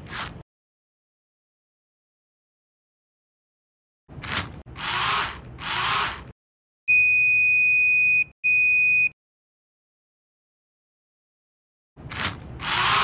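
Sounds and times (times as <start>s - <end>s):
small geared motors whirring: 4.1s - 6.4s, 12.0s - 13.0s.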